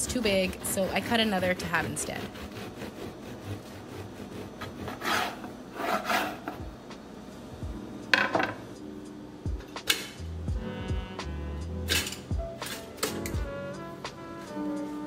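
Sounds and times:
bread knife sawing crusty loaf: 0.0 - 6.6.

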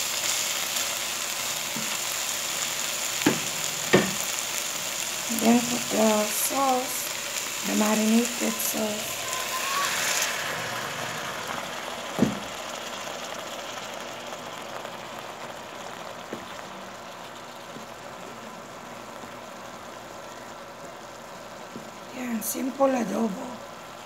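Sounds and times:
sauce sizzling in hot wok: 0.0 - 24.0
sharp knock: 3.2 - 4.2.

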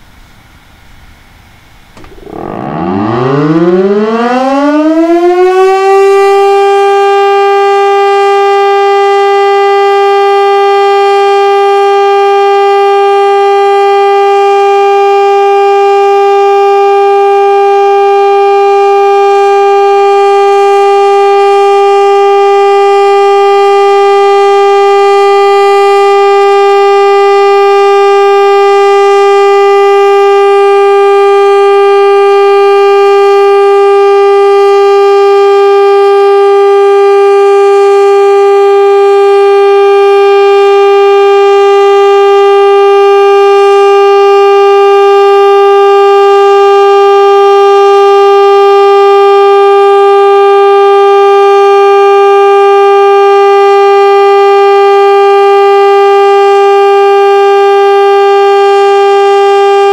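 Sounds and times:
warning siren: 2.0 - 59.9.

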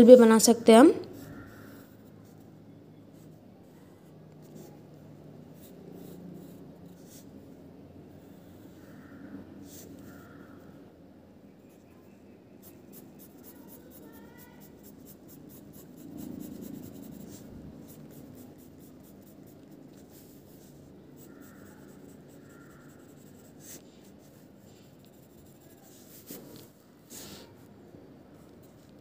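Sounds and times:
pencil scratching on paper: 4.3 - 7.5, 12.6 - 27.6
dull rub on paper: 12.6 - 27.6.

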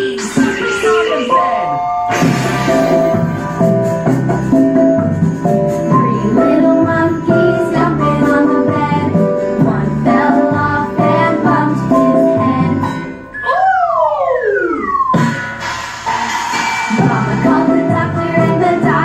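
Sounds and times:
upbeat children's song: 0.0 - 19.0
rising whistle-like glide: 13.3 - 16.3.

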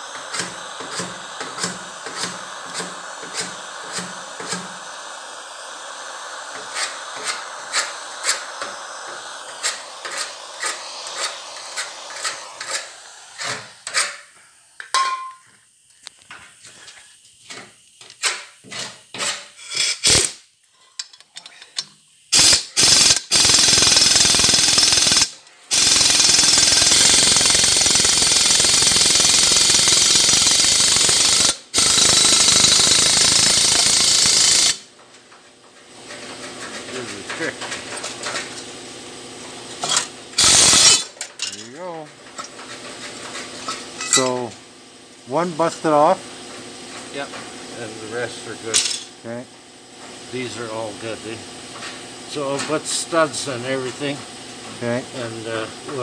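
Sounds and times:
pneumatic impact wrench: 0.0 - 14.4, 18.0 - 20.5, 22.3 - 34.9, 39.8 - 41.6
propane torch hissing: 0.0 - 20.5, 21.8 - 34.9, 36.8 - 42.1, 45.2 - 49.4, 50.1 - 56.0.

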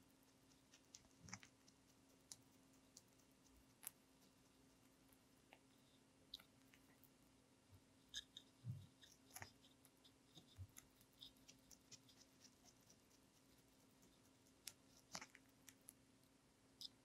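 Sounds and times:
rabbit chewing cucumber: 0.0 - 5.7, 8.0 - 15.9.

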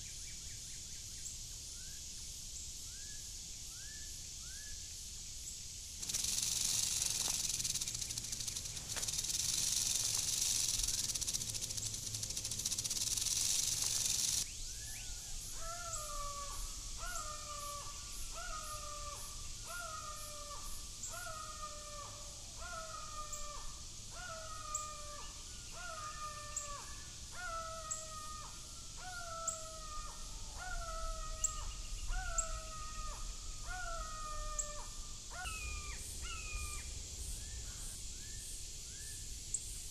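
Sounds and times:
rattlesnake rattle buzzing: 5.8 - 14.6
hawk calling: 6.0 - 14.4.

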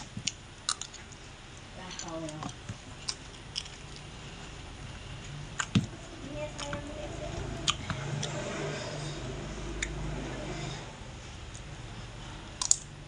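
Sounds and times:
chewing: 2.2 - 5.8
metal spoon scraping a plate: 8.3 - 11.0.

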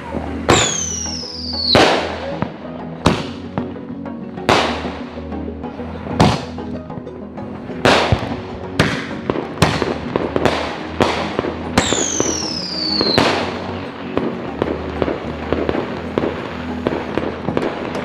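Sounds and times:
falling firework whistle: 0.0 - 2.2, 11.8 - 13.5
firework bangs: 0.0 - 3.8, 4.4 - 5.3, 6.1 - 6.7, 7.8 - 18.0.

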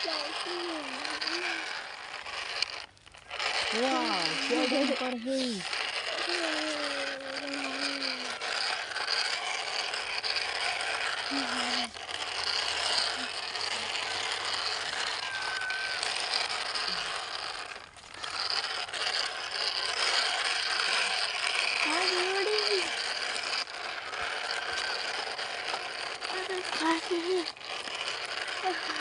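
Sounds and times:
toy truck wheels ratcheting whir: 0.0 - 29.0.

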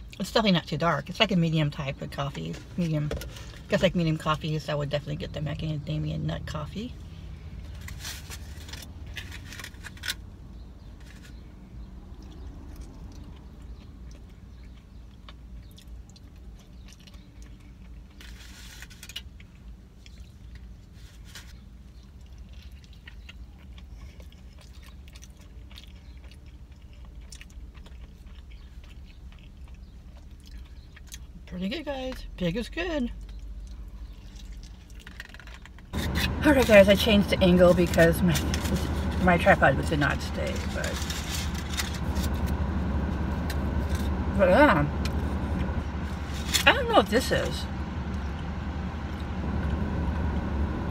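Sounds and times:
steady low hum: 0.0 - 18.3, 19.0 - 50.9
chewing and biting food: 12.1 - 31.5, 33.2 - 36.8
handling noise: 35.2 - 44.3.

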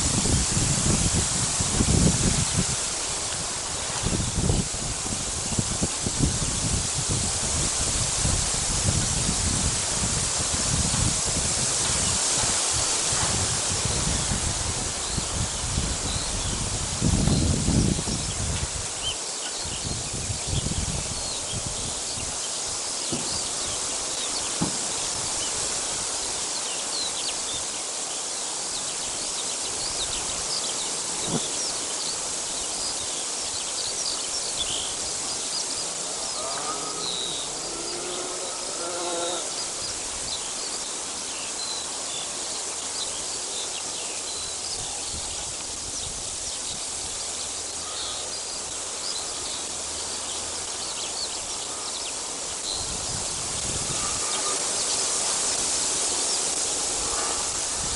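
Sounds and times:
small birds chirping: 15.0 - 57.9.

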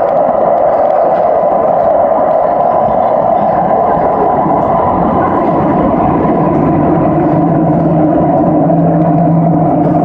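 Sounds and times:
steady low tone: 0.0 - 10.0
train wheels rumbling on rails: 0.0 - 10.0.

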